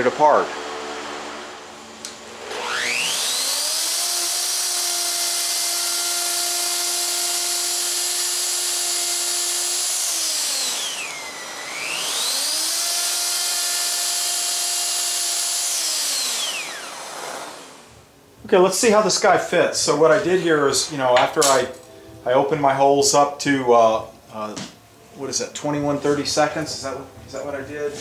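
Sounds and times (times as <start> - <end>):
router high whine: 0.0 - 18.0.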